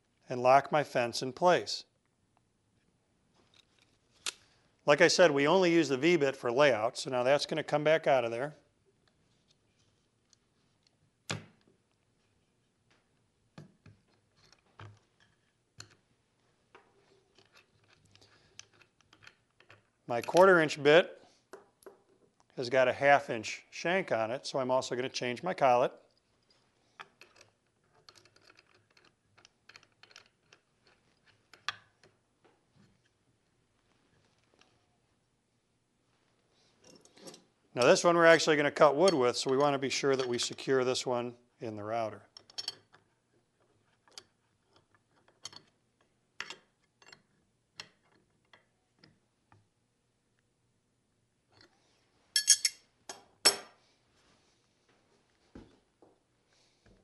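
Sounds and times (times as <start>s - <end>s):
small metal clicks and taps: 27.0s - 32.2s, 43.9s - 49.6s.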